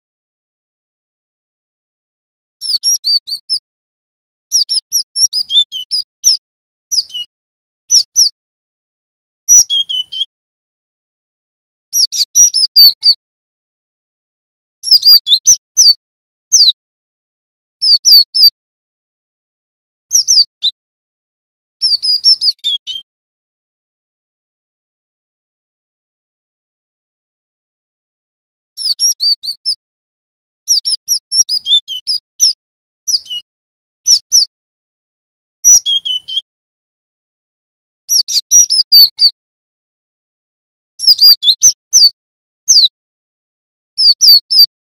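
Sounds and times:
bird singing whistled notes: 2.6 - 3.6, 4.5 - 7.3, 7.9 - 8.4, 9.5 - 10.3, 12.0 - 13.2, 14.8 - 16.8, 17.8 - 18.6, 20.1 - 20.8, 21.8 - 23.1, 28.8 - 29.8, 30.7 - 33.5, 34.1 - 34.5, 35.6 - 36.5, 38.1 - 39.4, 41.0 - 43.0, 44.0 - 44.7.

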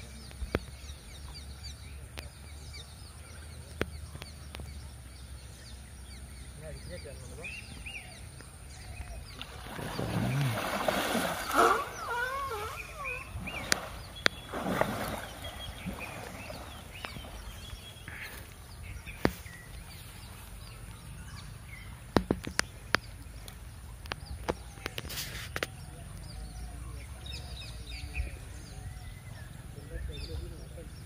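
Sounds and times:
birds chirping: 0.0 - 31.0
water sloshing and splashing: 9.2 - 20.9.

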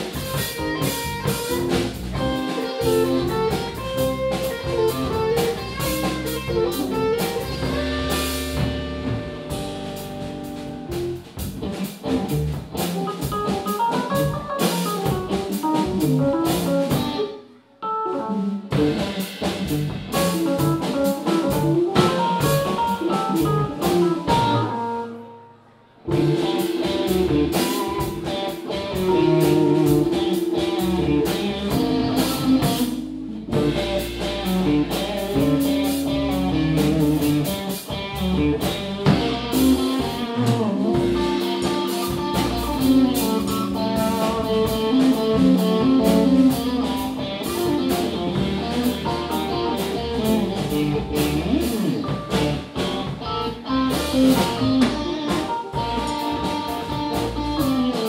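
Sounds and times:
drum kit with cymbals: 0.0 - 17.4, 18.3 - 25.2, 26.0 - 58.0
electric guitar: 0.0 - 58.0.

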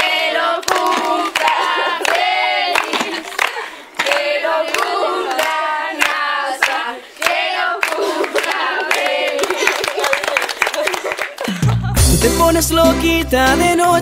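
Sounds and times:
voices singing together: 0.0 - 10.0
hand claps: 0.6 - 12.0.

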